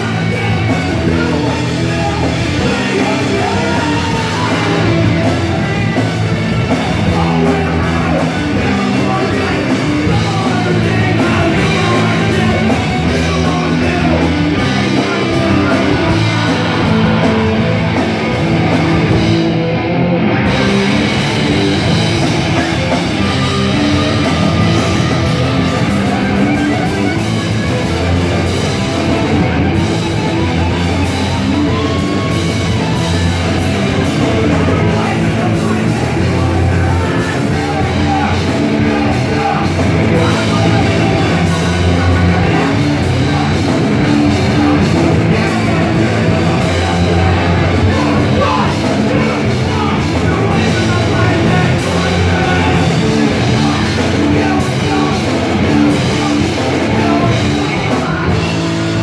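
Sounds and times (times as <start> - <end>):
person singing into a microphone: 0.0 - 17.9, 21.8 - 59.0
bass: 0.0 - 59.0
distorted electric guitars: 0.0 - 59.0
drums: 0.0 - 59.0.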